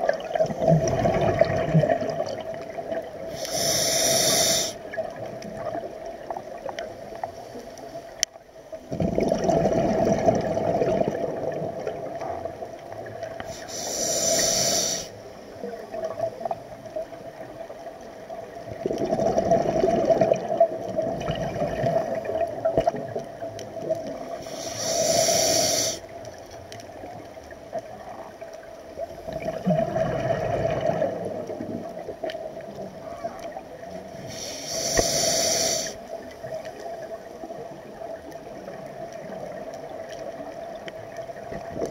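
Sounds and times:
diver exhaling bubbles: 0.0s - 4.8s, 8.9s - 12.2s, 18.8s - 23.1s, 29.3s - 31.9s
regulator hissing inhalations: 3.3s - 4.9s, 13.4s - 15.3s, 24.4s - 26.1s, 34.2s - 36.0s.

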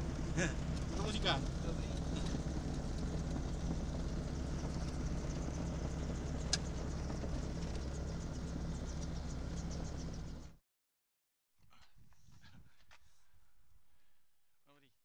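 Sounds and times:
gyroplane engine droning: 0.0s - 10.6s.

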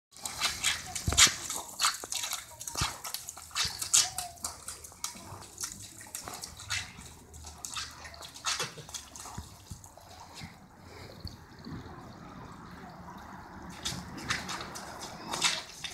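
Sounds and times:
dog lapping at water: 0.1s - 15.9s
hose water splashing on pavement: 0.1s - 15.9s.

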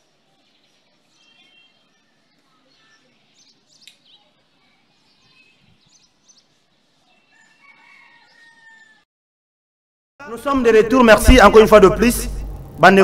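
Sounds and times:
faint bird chirps: 0.0s - 8.9s
rooster crowing: 7.3s - 9.1s.

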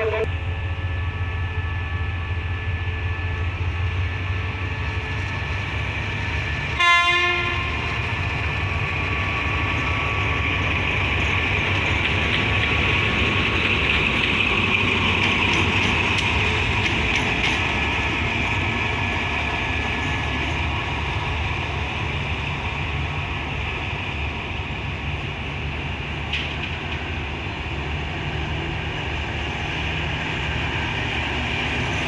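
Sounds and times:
locomotive horn blast: 0.0s - 0.3s, 6.8s - 7.9s
diesel locomotive engine rumble: 0.0s - 32.0s
train wheels running: 0.0s - 32.0s.

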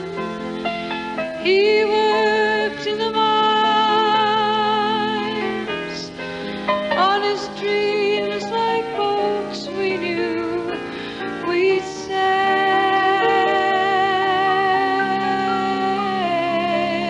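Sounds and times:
woman singing slow melody: 1.4s - 6.2s, 7.0s - 10.8s, 11.4s - 17.0s
sustained chords: 13.2s - 16.0s.

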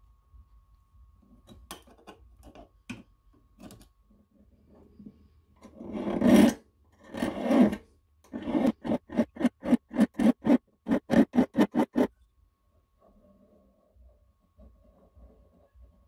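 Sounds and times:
hand file rasping on metal: 7.1s - 12.1s.

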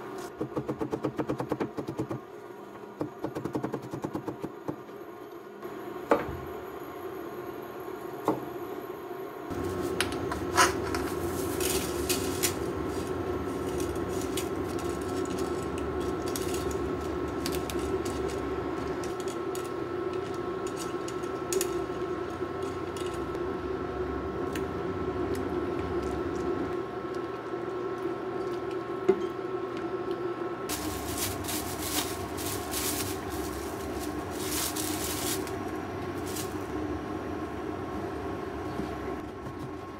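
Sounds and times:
plastic wrap crinkling: 30.7s - 36.7s.

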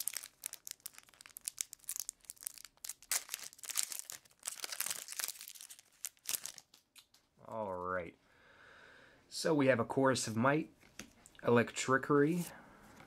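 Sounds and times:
foil wrapper crinkling and tearing: 0.0s - 7.2s.

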